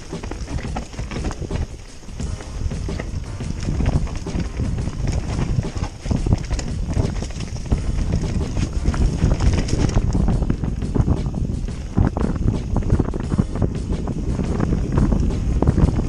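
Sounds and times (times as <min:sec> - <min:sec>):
bike rattling over bumps: 0:00.0 - 0:16.0
bike tyres rumbling on dirt: 0:00.0 - 0:16.0.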